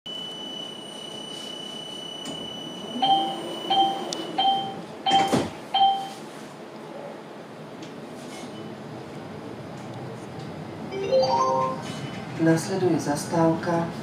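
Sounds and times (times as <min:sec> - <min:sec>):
two-tone warning beeps: 0:00.1 - 0:06.2.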